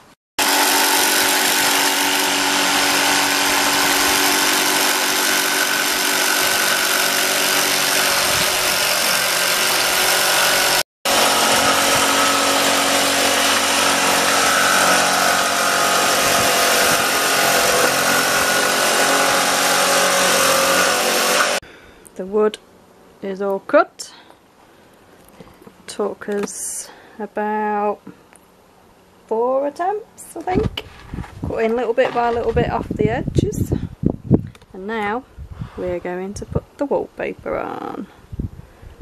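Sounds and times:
jigsaw cutting plywood: 0:00.4 - 0:21.6.

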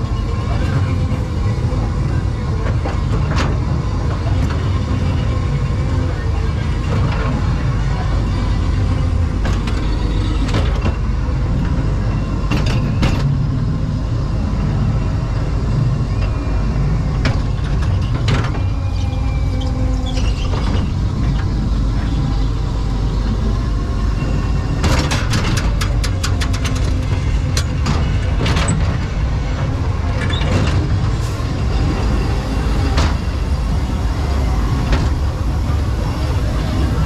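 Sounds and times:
faint fairground music: 0:00.0 - 0:37.0
ride car rumbling on track: 0:00.0 - 0:37.0
rapid clicking and rattling: 0:24.8 - 0:31.1.

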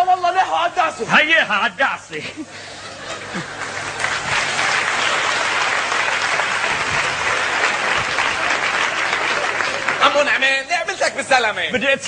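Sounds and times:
audience applause: 0:02.9 - 0:10.7.

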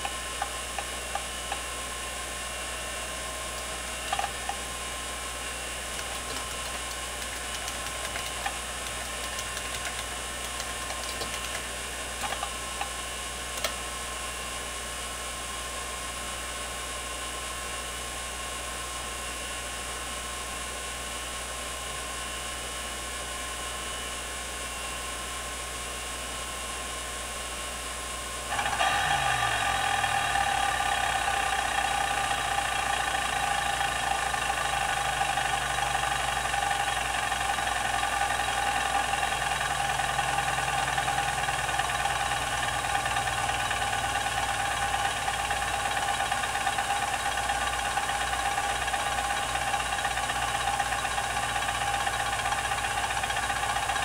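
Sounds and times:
hard drive seek clicks: 0:00.0 - 0:01.7, 0:03.5 - 0:04.7, 0:05.9 - 0:13.8
hard drive spinning: 0:00.0 - 0:14.3, 0:28.5 - 0:54.0.

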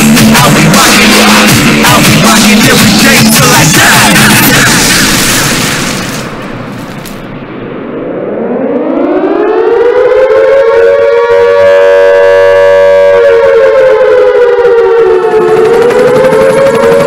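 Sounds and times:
siren-style wail in backing track: 0:07.8 - 0:17.0.

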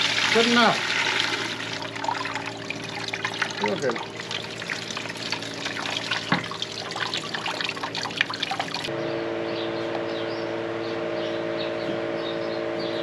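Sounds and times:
water splashing and trickling: 0:00.0 - 0:08.9
steady hum: 0:00.0 - 0:13.0.

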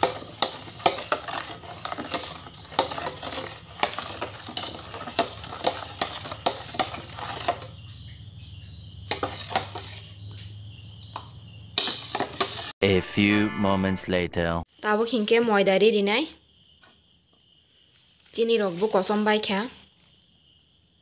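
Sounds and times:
metal spoon stirring in steel bowl: 0:00.0 - 0:07.7, 0:09.1 - 0:10.1.

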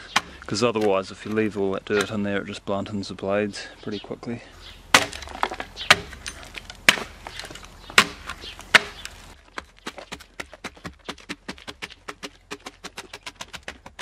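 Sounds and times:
blade chopping log bark: 0:00.0 - 0:01.4, 0:04.9 - 0:14.0.

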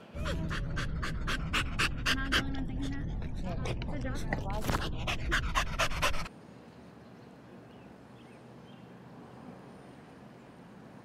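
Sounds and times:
dog panting: 0:00.2 - 0:06.3.

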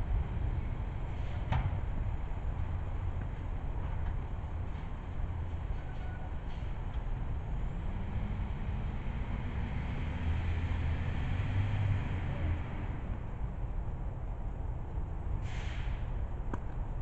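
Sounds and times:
vehicle engine passing: 0:07.7 - 0:13.2.

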